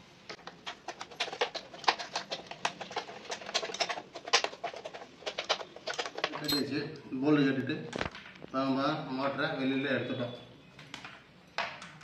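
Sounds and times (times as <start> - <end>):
metal tools clicking and scraping: 0.8 - 6.8.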